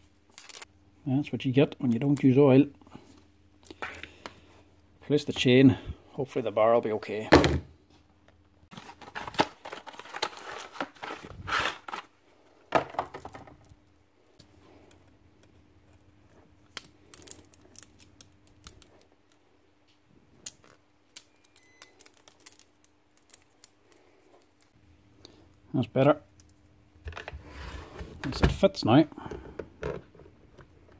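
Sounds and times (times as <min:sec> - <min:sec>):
packaging crinkling: 0:08.7 - 0:12.2, 0:16.7 - 0:19.1, 0:20.6 - 0:24.7.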